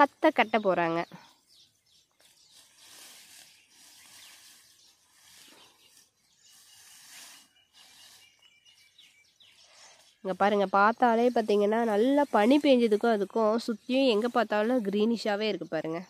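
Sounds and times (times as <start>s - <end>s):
faint rustles: 2.0s - 10.5s.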